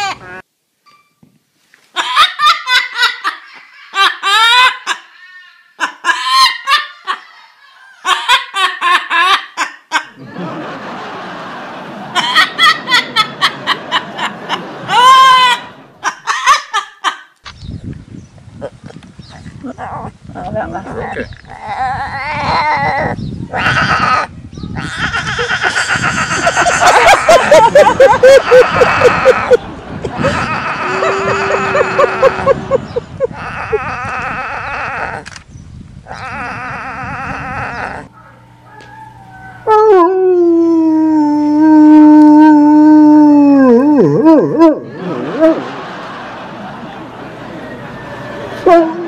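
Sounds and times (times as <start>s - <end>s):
parrot mimicking laughter: 0.0s - 0.4s, 1.9s - 17.4s, 19.6s - 35.3s, 36.1s - 38.1s, 42.5s - 46.5s
lion cub bawling cries: 20.7s - 35.3s, 36.1s - 44.9s.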